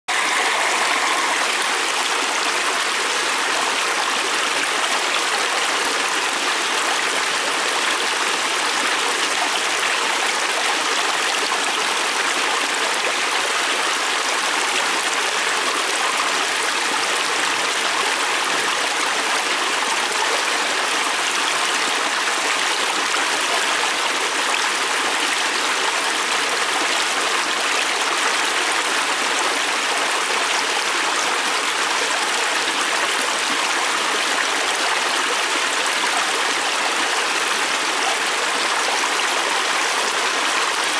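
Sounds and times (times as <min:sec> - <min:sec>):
water rushing over rocks: 0:00.1 - 0:16.6, 0:28.0 - 0:40.9.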